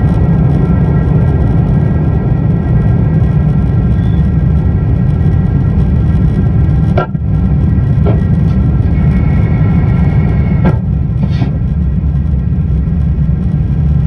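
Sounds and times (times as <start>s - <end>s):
engine rumble and rushing air: 0.0s - 14.0s
faint whining tones: 0.0s - 14.0s.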